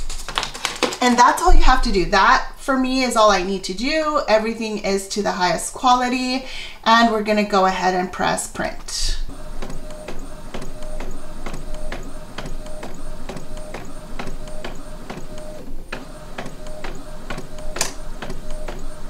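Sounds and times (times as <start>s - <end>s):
printer motor tone: 8.1s - 19.0s
printer carriage shuttling: 9.2s - 19.0s
printer carriage clicks: 9.6s - 19.0s.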